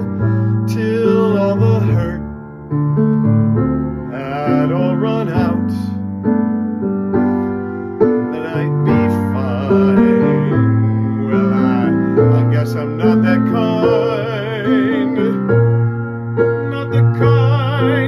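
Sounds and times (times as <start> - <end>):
piano chords: 0.0 - 18.0
person singing long notes: 8.4 - 15.4.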